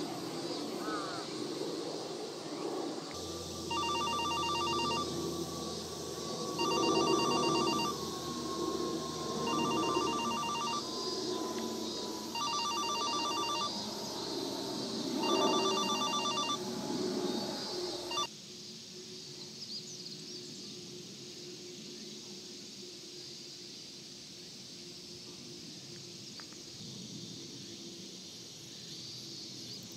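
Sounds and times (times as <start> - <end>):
telephone ringing: 3.6 - 5.4, 6.5 - 8.0, 9.4 - 10.9, 12.3 - 13.8, 15.2 - 16.6, 18.1 - 18.3.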